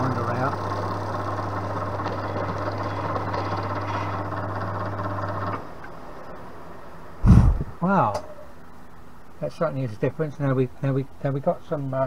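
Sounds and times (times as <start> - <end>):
milling machine motor hum: 0.0 - 5.6.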